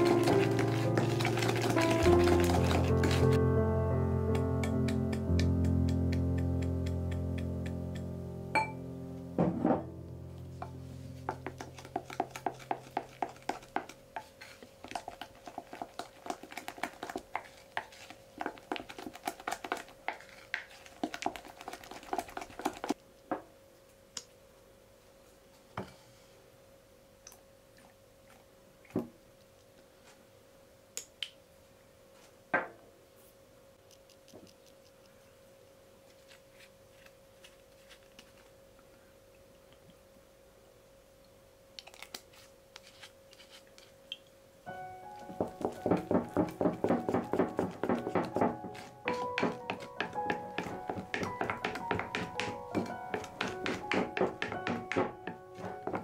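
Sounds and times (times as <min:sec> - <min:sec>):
spatula scraping glass bowl: 0:00.0 - 0:03.4.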